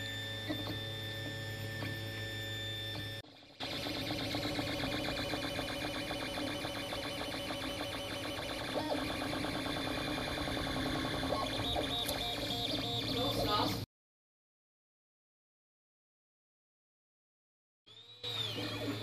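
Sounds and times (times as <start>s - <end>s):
printer stepper motors whirring: 0.0s - 13.8s, 17.9s - 19.0s.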